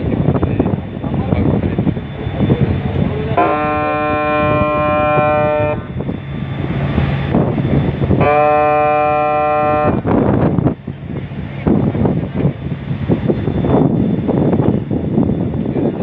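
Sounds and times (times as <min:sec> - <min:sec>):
ship engine drone: 0:00.0 - 0:16.0
ship's horn blasts: 0:03.0 - 0:10.8.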